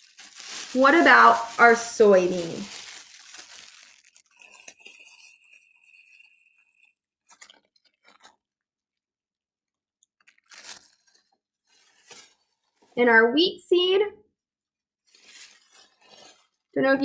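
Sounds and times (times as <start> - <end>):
glove crinkling and ticking: 0.0 - 12.9.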